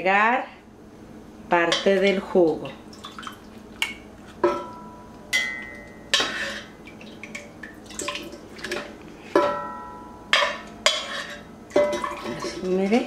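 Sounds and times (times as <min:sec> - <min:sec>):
wet splashes and drips: 0:02.5 - 0:04.0, 0:06.8 - 0:08.9, 0:11.8 - 0:12.8.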